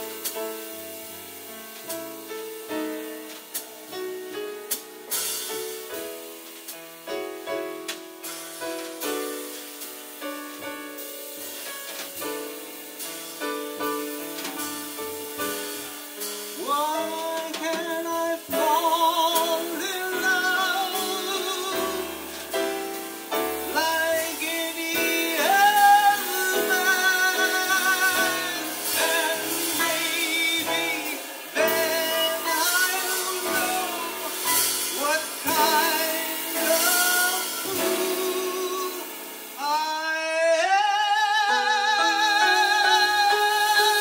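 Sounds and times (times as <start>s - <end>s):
piano: 0.0s - 44.0s
man singing a slow ballad: 16.4s - 44.0s.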